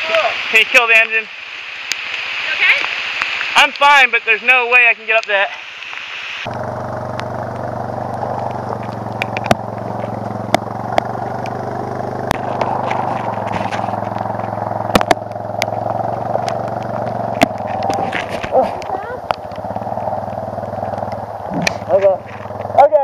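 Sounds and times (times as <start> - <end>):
motorcycle engine running steadily: 6.4 - 23.0.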